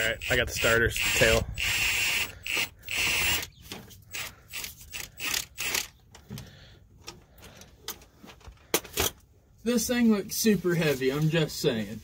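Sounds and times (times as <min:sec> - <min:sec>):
impact wrench bursts: 0:00.0 - 0:06.0.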